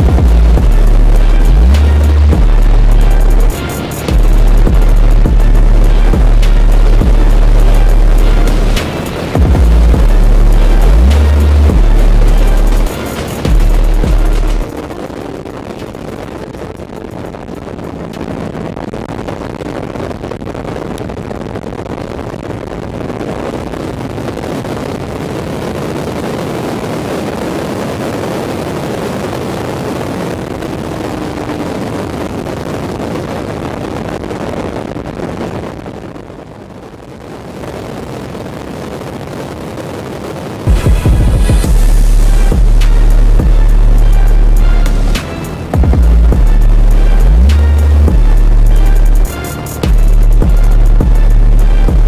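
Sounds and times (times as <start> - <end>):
motorcycle engine at speed: 0.0 - 21.2, 22.8 - 34.4
wind rushing over microphone: 0.0 - 52.0.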